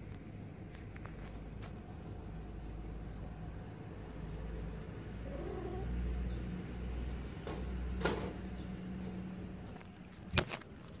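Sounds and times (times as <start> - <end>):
kitten meowing faintly: 5.2 - 6.0.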